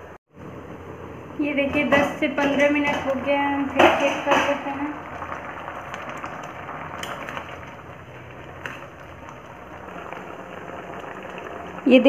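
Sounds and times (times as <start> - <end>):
syrup boiling and bubbling: 2.7 - 12.0.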